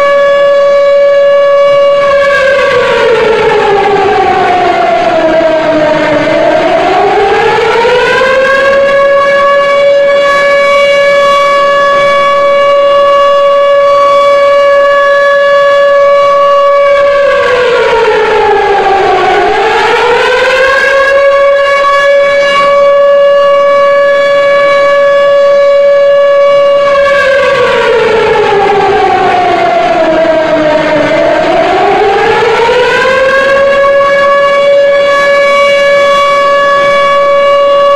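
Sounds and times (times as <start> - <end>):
siren wailing: 0.0 - 37.9.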